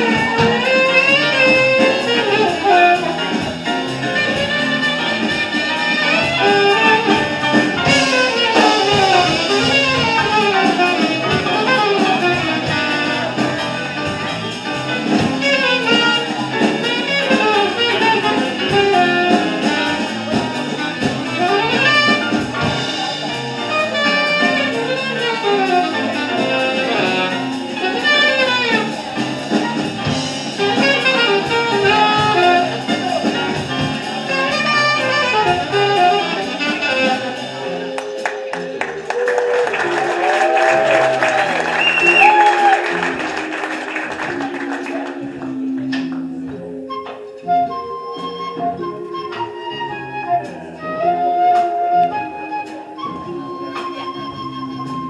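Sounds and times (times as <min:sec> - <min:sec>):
saxophone runs: 0:00.0 - 0:38.0
jazz big band playing: 0:00.0 - 0:55.0.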